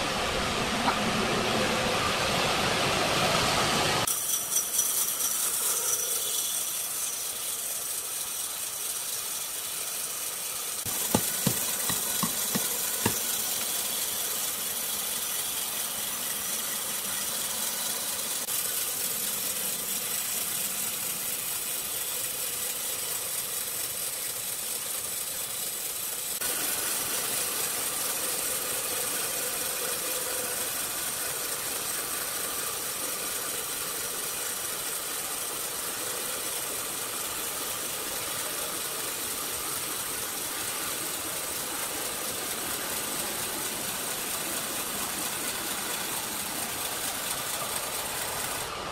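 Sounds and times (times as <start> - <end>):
band saw cutting log: 4.0 - 48.9
sharp knocks: 10.9 - 13.3.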